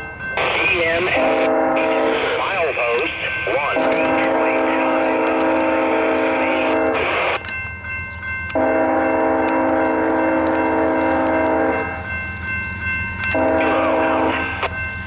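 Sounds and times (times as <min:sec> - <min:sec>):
electronic crossing bell ringing: 0:00.0 - 0:15.0
locomotive horn blasts: 0:01.0 - 0:02.4, 0:03.7 - 0:07.4, 0:08.5 - 0:12.0, 0:13.3 - 0:14.7.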